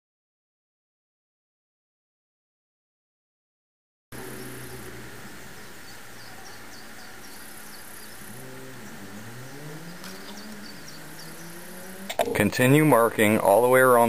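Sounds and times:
vehicle engine accelerating: 0:04.1 - 0:13.5
background hum: 0:04.1 - 0:14.0.

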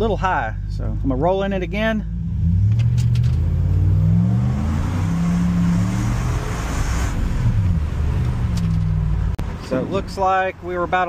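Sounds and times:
truck engine accelerating: 0:02.1 - 0:09.6.

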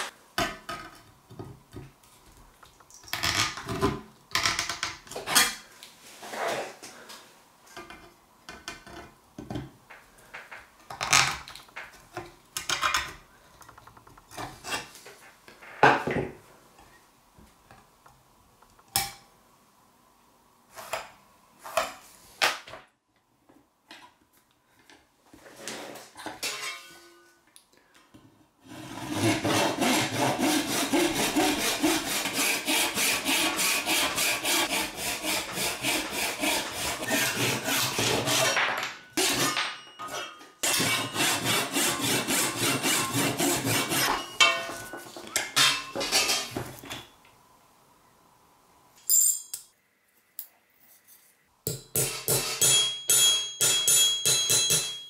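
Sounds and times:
hand saw cutting wood: 0:28.6 - 0:38.6, 0:39.2 - 0:39.7, 0:40.6 - 0:44.4.

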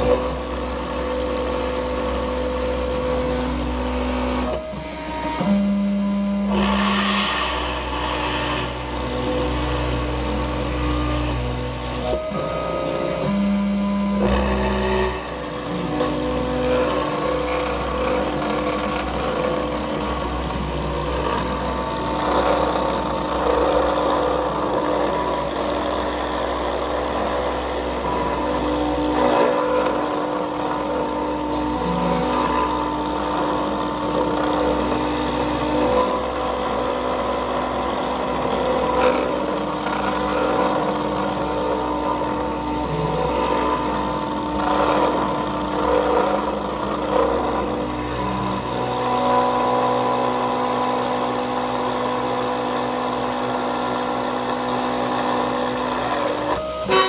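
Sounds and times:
cnc router milling plastic: 0:00.0 - 0:57.0.

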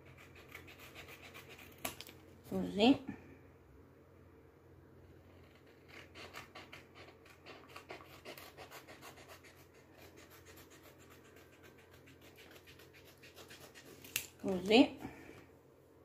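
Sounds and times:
scissors snipping paper: 0:10.0 - 0:14.6.

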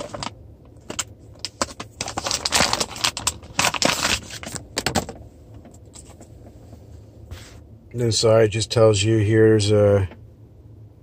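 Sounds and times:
packaging crinkling and clicking: 0:00.0 - 0:06.2.

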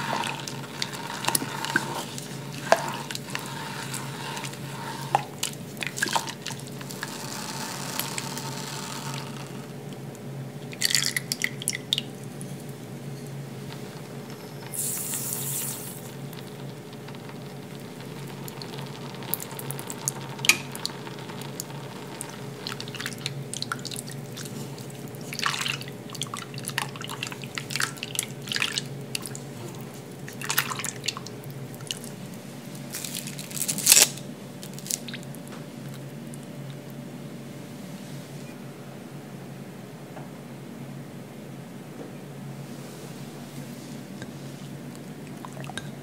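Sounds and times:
liquid sloshing: 0:00.0 - 0:09.6, 0:13.7 - 0:33.6
spatula scraping saucepan: 0:00.0 - 0:09.6
steady low hum: 0:00.0 - 0:46.0.

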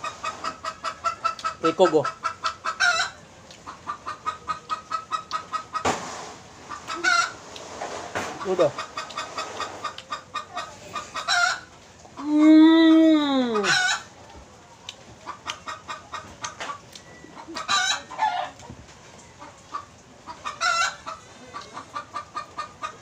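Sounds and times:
chicken squawks: 0:00.0 - 0:06.0, 0:06.7 - 0:07.4, 0:08.4 - 0:12.3, 0:13.5 - 0:14.1, 0:17.4 - 0:18.6, 0:19.7 - 0:23.0
chickens clucking: 0:00.0 - 0:12.6, 0:13.2 - 0:23.0.

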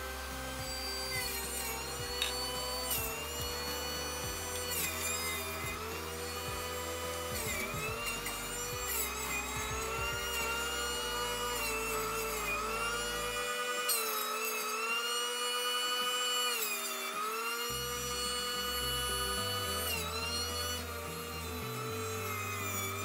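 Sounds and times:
juice extractor whining: 0:00.0 - 0:23.0.

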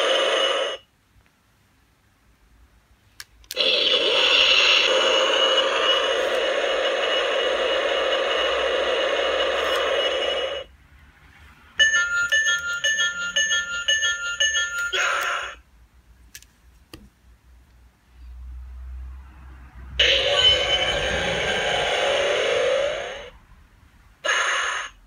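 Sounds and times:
electronic hissing effect: 0:03.6 - 0:10.7, 0:20.0 - 0:23.3
toy click: 0:12.1 - 0:15.4.

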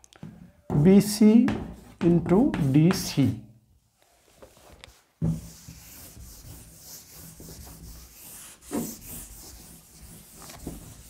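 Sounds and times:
cloth rubbing on blackboard: 0:04.2 - 0:11.0.

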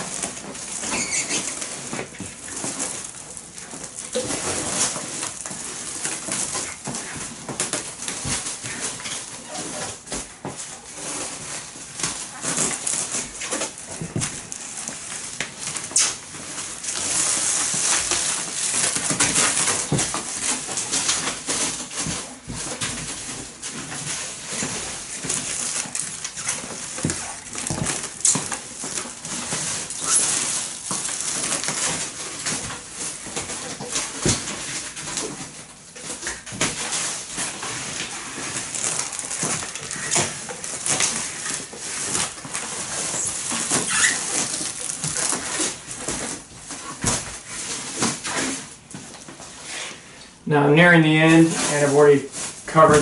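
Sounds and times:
stretch wrap film crackling: 0:00.0 - 0:53.0.

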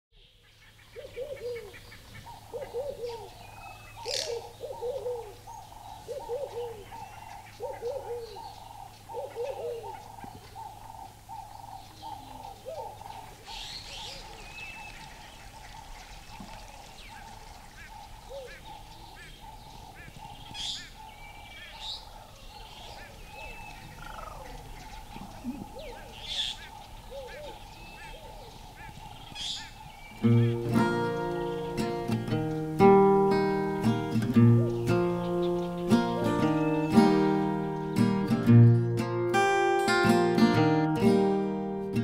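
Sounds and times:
pulsing bird chorus: 0:00.2 - 0:42.0
low rising-and-falling bird call: 0:01.0 - 0:15.0, 0:17.1 - 0:38.4
high bird chirps: 0:18.8 - 0:38.4.

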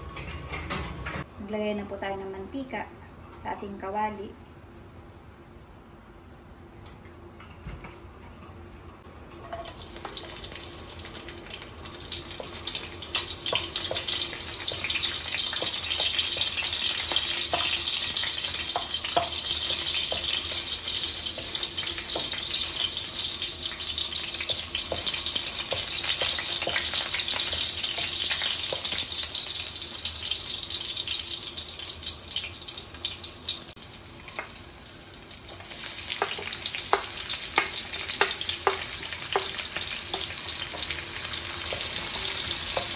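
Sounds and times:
garlic sizzling in oil: 0:09.5 - 0:42.9.

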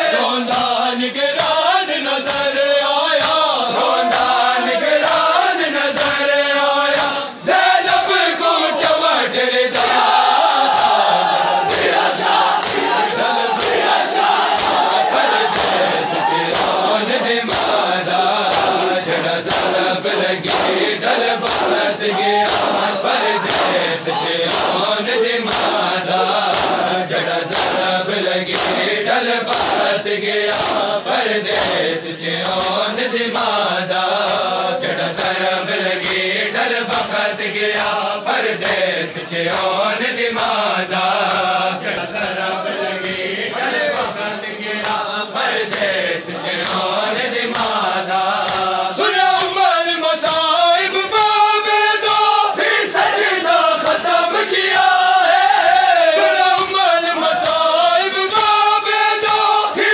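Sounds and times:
men chanting in unison: 0:00.0 - 0:59.9
hands slapping bare chests: 0:03.2 - 0:04.4, 0:09.7 - 0:31.9, 0:32.6 - 0:32.9, 0:43.9 - 0:48.8.

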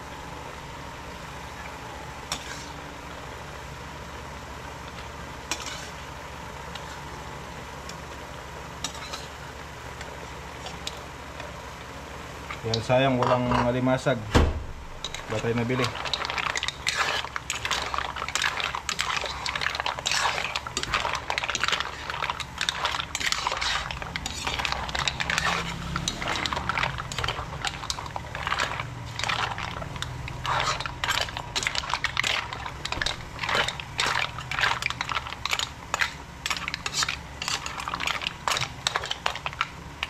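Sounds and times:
utensil scraping and clinking in pan: 0:02.3 - 0:02.8, 0:04.9 - 0:06.1, 0:08.8 - 0:11.1, 0:12.5 - 0:14.1, 0:15.0 - 0:40.0.

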